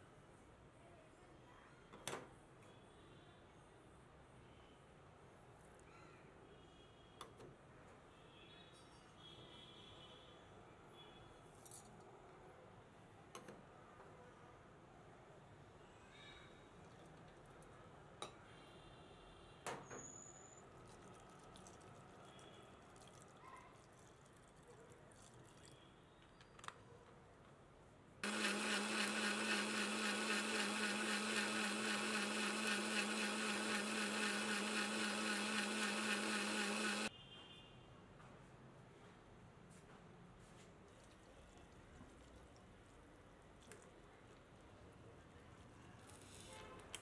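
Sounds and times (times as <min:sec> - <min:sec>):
mixer grinder running: 0:28.2 - 0:37.1.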